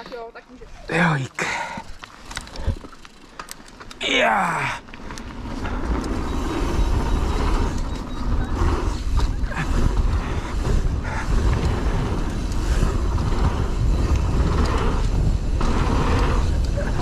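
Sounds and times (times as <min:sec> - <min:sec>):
bike tyres rumbling on trail: 0:01.4 - 0:17.0
bike clattering and rattling: 0:01.8 - 0:17.0.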